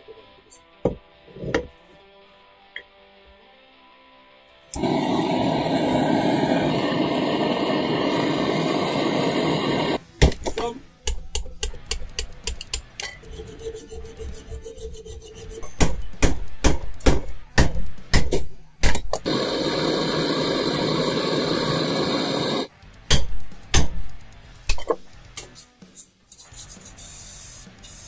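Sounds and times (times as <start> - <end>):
blowtorch flame hissing: 4.7 - 10.0, 19.2 - 22.7
hammer striking metal: 15.6 - 19.4, 23.1 - 24.1.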